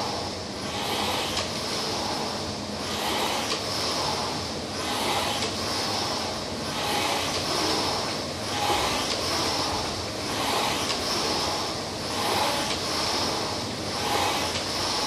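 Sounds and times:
rowing machine fan whirring: 0:00.0 - 0:15.0.

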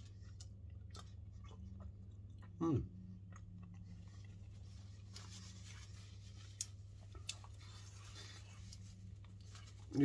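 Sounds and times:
steady low hum: 0:00.0 - 0:10.0
rustling of food packaging: 0:03.6 - 0:10.0.

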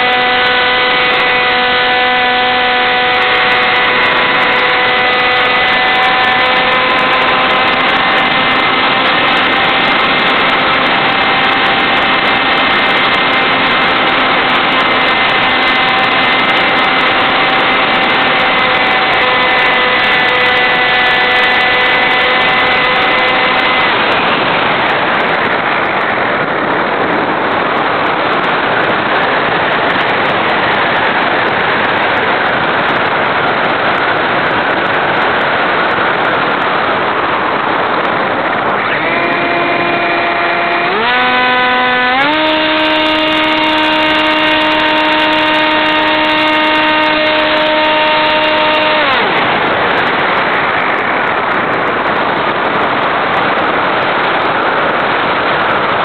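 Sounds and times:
model plane motor whine: 0:00.0 - 0:25.6, 0:38.7 - 0:50.3
wind rushing over camera: 0:00.0 - 0:56.0.

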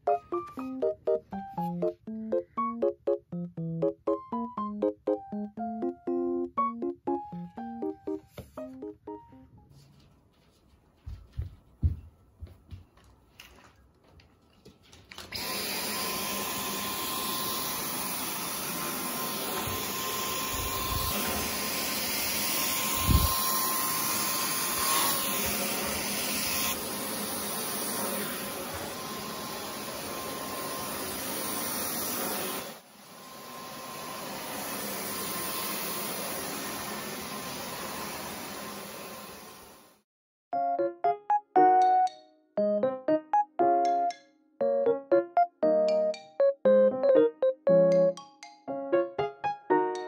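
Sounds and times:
stick vacuum whirring: 0:14.2 - 0:39.8.

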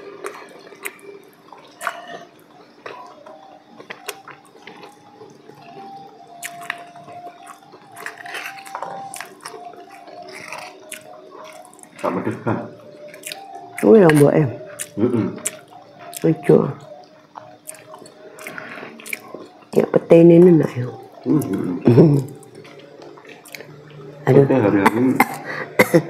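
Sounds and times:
chewing and mouth sounds: 0:00.0 - 0:24.2
faint steady hum: 0:00.0 - 0:26.0.

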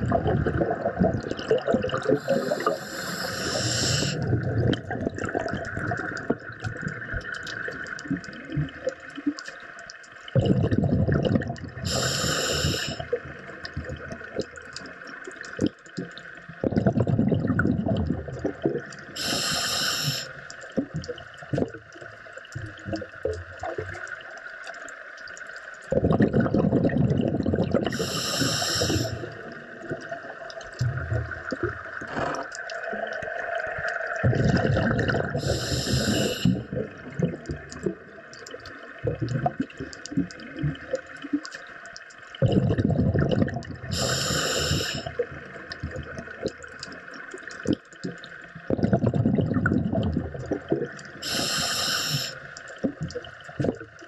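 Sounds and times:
exhaled air bubbling: 0:00.0 - 0:54.0
regulator inhalation hiss: 0:02.1 - 0:04.3, 0:11.8 - 0:13.1, 0:19.2 - 0:20.5, 0:27.9 - 0:29.4, 0:35.4 - 0:36.7, 0:43.9 - 0:45.1, 0:51.2 - 0:52.6.

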